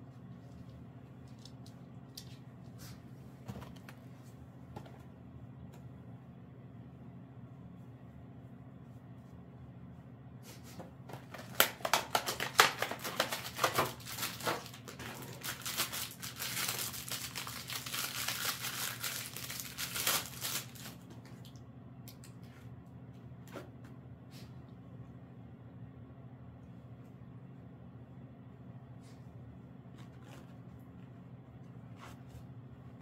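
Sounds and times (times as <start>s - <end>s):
wrapping crinkling and tearing: 11.2s - 21.1s.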